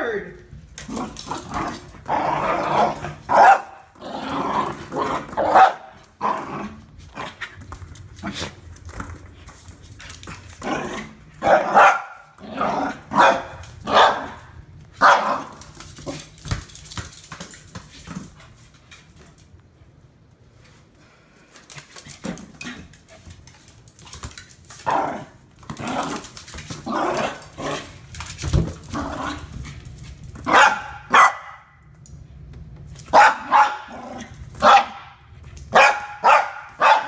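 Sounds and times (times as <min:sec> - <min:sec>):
puppy barking and growling: 0:00.8 - 0:07.6, 0:10.4 - 0:16.4, 0:24.7 - 0:29.8, 0:30.4 - 0:31.8, 0:33.0 - 0:37.0.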